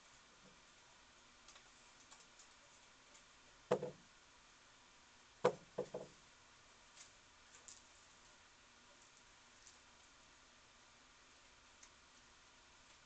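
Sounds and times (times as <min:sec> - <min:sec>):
animal knocking against wood: 0:03.7 - 0:04.0, 0:05.4 - 0:06.2.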